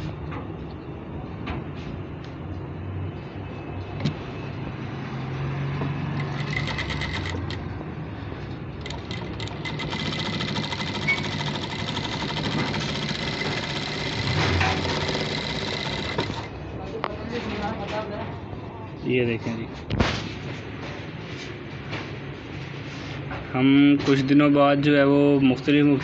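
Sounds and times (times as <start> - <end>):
sewing machine motor hum: 6.1 - 7.7, 8.8 - 16.5
sewing machine needle strokes: 6.2 - 7.7, 8.8 - 16.5.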